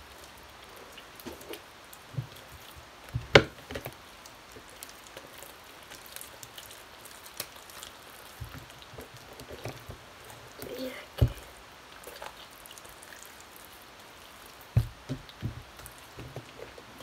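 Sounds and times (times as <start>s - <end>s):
slime squishes and sticky pops: 1.0s - 10.0s.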